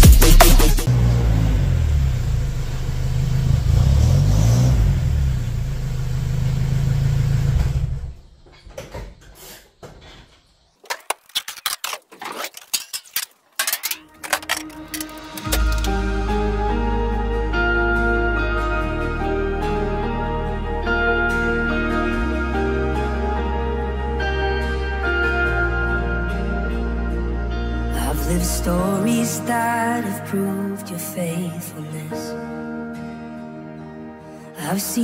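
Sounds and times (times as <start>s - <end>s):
vehicle engine revving: 0.8s - 8.2s
clanks and knocks of objects: 8.4s - 16.0s.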